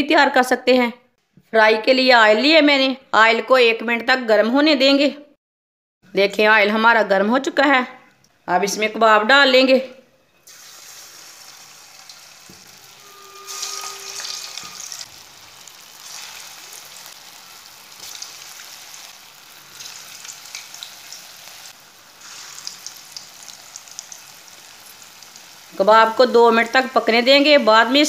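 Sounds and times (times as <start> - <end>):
food sizzling in hot oil: 10.4 - 28.0.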